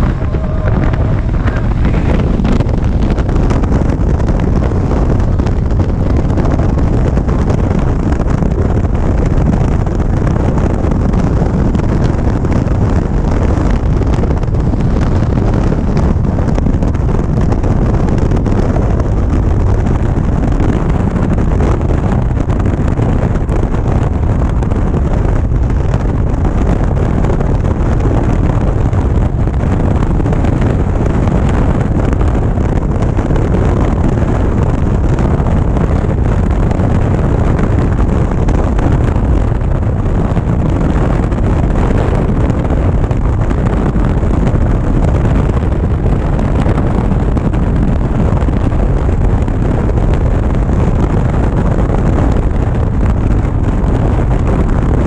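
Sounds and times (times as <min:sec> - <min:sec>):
motorcycle engine: 0:00.0 - 0:18.5
road noise: 0:00.0 - 0:55.0
wind buffeting microphone: 0:00.0 - 0:55.0.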